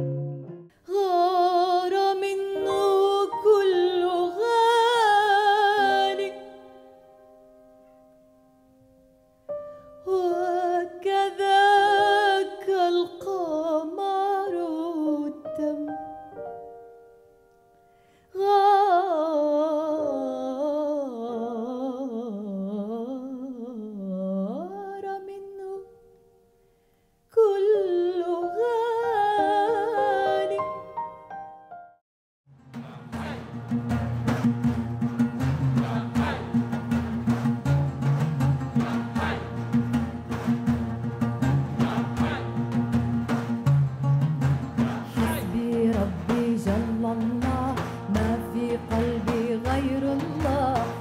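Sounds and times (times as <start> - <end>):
grand piano: 0.0 - 17.8, 28.2 - 32.0
woman singing: 0.8 - 6.9, 10.0 - 16.1, 18.3 - 26.0, 27.3 - 30.8, 44.9 - 51.0.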